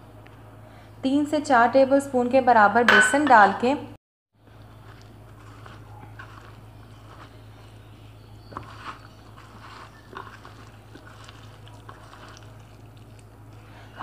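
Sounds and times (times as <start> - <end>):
steady low hum: 0.0 - 14.0
hand squishing wet batter: 4.6 - 14.0.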